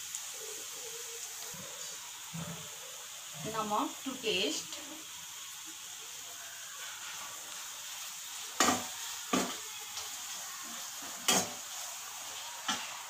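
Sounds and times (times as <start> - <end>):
vegetables sizzling in a pan: 0.0 - 13.0
metal spatula striking pan: 8.6 - 9.6.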